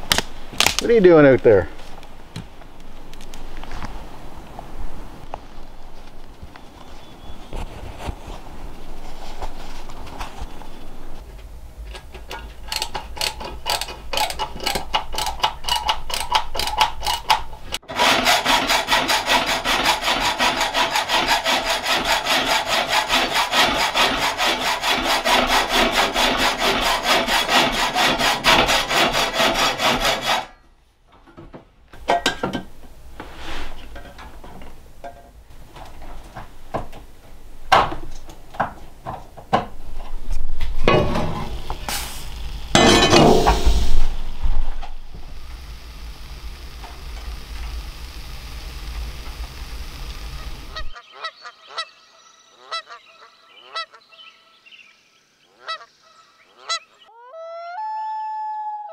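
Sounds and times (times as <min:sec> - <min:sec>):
hacksaw cutting pipe: 0:11.9 - 0:30.6, 0:42.8 - 0:43.9.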